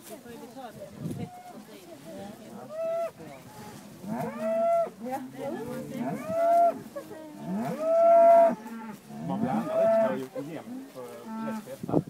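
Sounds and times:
cows mooing: 0:02.6 - 0:11.7.

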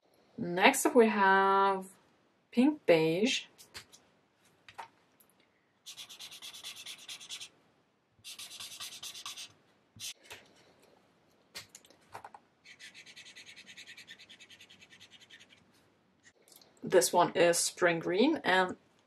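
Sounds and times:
marker nib scrubbing on paper: 0:05.9 - 0:07.5, 0:08.2 - 0:10.4, 0:12.6 - 0:15.7.

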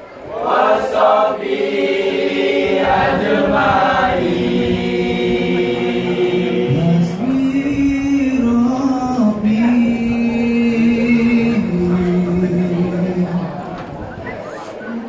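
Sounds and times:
group chanting in unison: 0:00.2 - 0:07.2.

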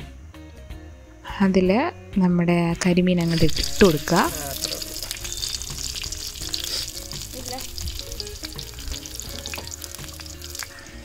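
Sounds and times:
fish sizzling in hot oil: 0:03.2 - 0:11.0.

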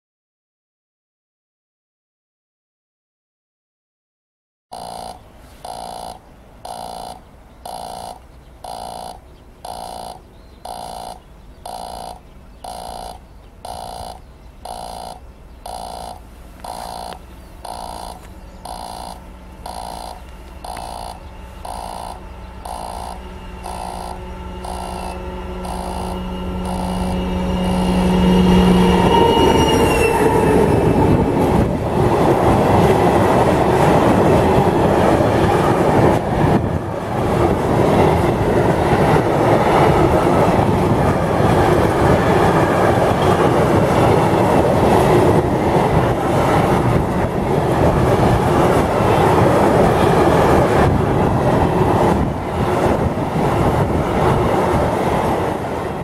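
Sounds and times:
level-crossing warning bell: 0:04.7 - 0:30.6
diesel locomotive engines passing: 0:04.7 - 0:56.0.

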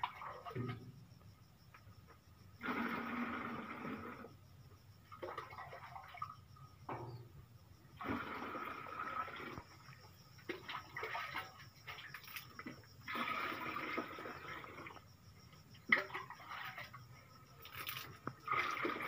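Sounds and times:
liquid pouring into watering can: 0:02.6 - 0:04.3, 0:05.1 - 0:06.4, 0:08.0 - 0:15.1, 0:15.9 - 0:17.0, 0:17.6 - 0:19.0
splashing and clatter: 0:05.1 - 0:06.4, 0:08.0 - 0:15.1, 0:15.8 - 0:19.0.

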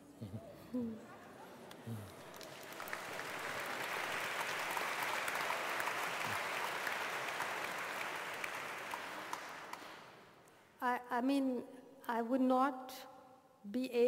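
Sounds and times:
audience applauding: 0:01.7 - 0:10.3.

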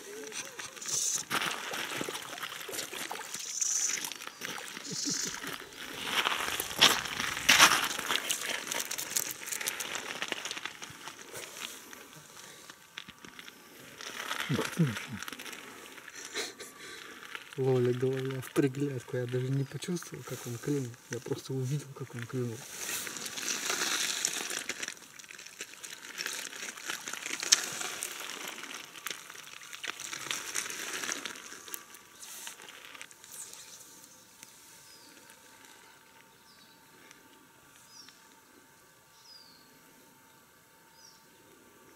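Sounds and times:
pebbles clicking and crunching: 0:00.0 - 0:33.7
clothing and gravel rustling: 0:00.0 - 0:38.1
water splashing and dripping: 0:01.2 - 0:05.5
water splashing in shallows: 0:01.2 - 0:09.9.

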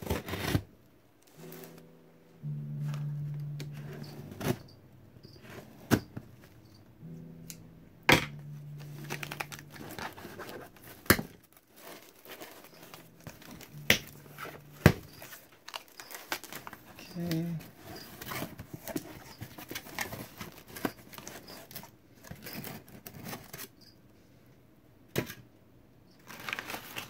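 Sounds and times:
cardboard and paper rustling: 0:00.0 - 0:00.7, 0:08.8 - 0:23.8, 0:26.2 - 0:27.0.

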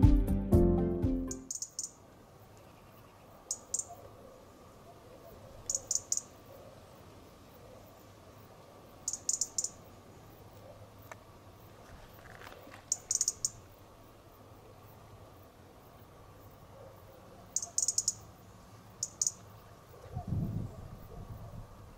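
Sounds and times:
robin ticking calls: 0:01.3 - 0:04.1, 0:05.6 - 0:06.5, 0:09.0 - 0:11.2, 0:12.8 - 0:13.8, 0:17.4 - 0:20.1.

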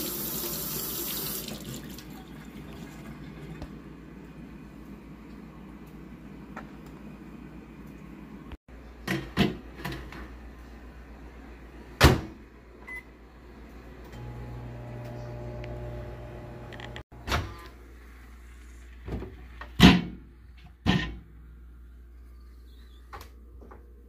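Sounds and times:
microwave oven humming: 0:10.3 - 0:18.3.

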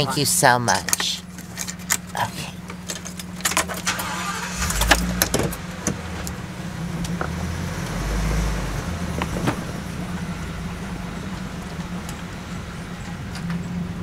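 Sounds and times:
engine low rumble: 0:00.0 - 0:14.0
sharp clicks and rattles: 0:00.8 - 0:06.4.

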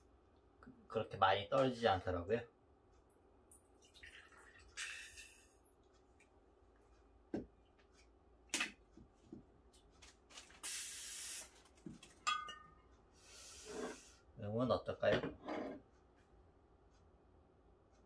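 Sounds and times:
gas hissing bursts: 0:10.6 - 0:11.5
light glassy clink: 0:12.3 - 0:12.8.

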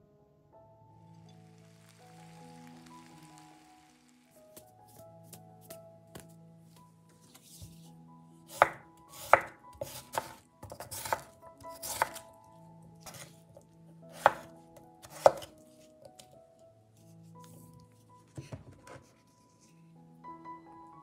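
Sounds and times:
knife chopping on cutting board: 0:08.5 - 0:12.2, 0:13.0 - 0:13.3, 0:14.1 - 0:15.5.

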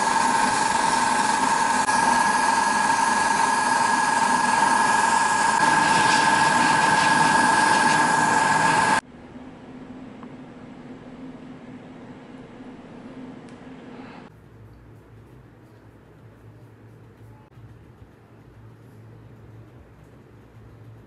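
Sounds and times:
airbrush hissing with whistle: 0:00.0 - 0:09.0.

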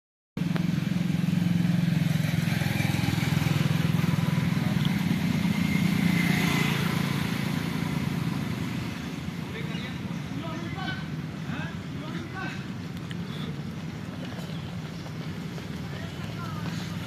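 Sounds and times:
vehicle engine running: 0:00.4 - 0:17.0.

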